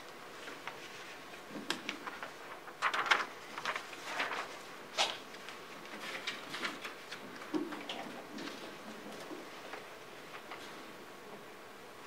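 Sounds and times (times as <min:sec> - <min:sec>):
book pages rustling: 0:00.4 - 0:07.8.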